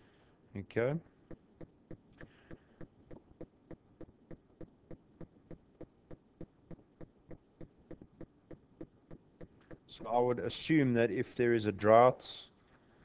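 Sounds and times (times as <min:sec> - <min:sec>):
steady ticking: 0:01.2 - 0:10.0.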